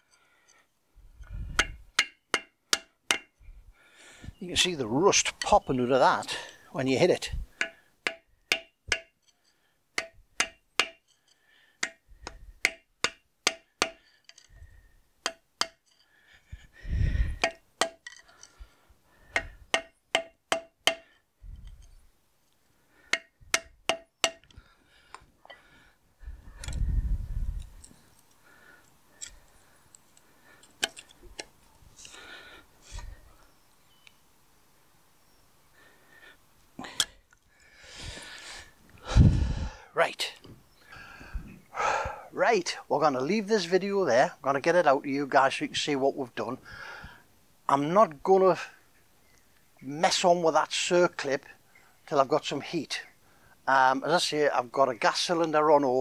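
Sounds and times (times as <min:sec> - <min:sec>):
hammer striking steel punch: 0:01.6 - 0:03.3, 0:07.6 - 0:09.1, 0:10.0 - 0:11.0, 0:11.8 - 0:14.0, 0:19.4 - 0:21.0.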